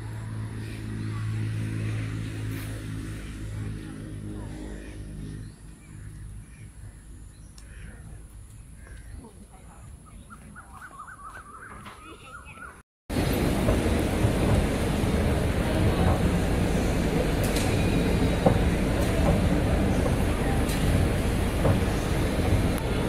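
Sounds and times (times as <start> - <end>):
low motor hum: 0.0 - 8.1, 13.1 - 23.0
birds calling: 4.4 - 12.8, 13.5 - 23.0.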